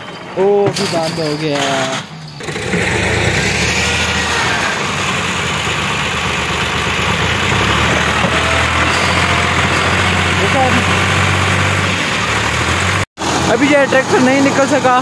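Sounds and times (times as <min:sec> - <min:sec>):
diesel tractor engine starting: 0:00.0 - 0:15.0
tractor engine running steadily: 0:02.4 - 0:15.0.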